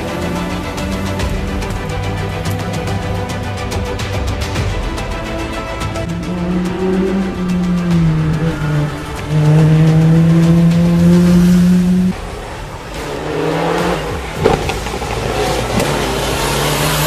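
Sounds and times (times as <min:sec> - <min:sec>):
background music with low notes: 0:00.0 - 0:17.0
race car engine accelerating: 0:00.0 - 0:17.0
sharp crack: 0:11.8 - 0:17.0.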